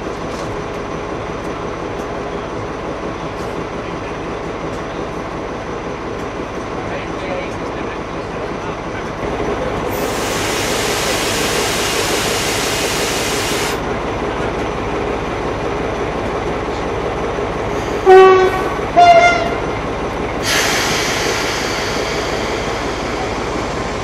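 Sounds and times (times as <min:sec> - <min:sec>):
diesel locomotive idling hum: 0:00.0 - 0:24.0
sharp air hiss: 0:10.0 - 0:13.8, 0:20.4 - 0:23.9
two-tone locomotive horn blasts: 0:18.0 - 0:19.7.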